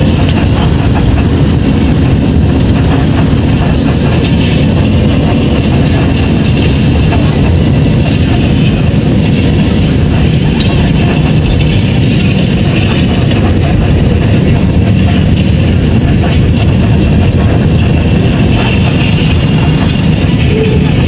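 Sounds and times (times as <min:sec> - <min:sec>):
road vehicle rumbling: 0:00.0 - 0:21.0.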